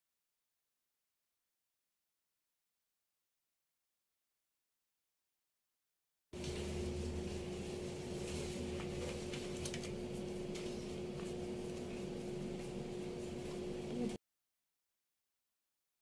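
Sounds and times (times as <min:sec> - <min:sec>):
soapy hands squishing: 0:06.4 - 0:14.2
steady low hum: 0:06.4 - 0:14.2.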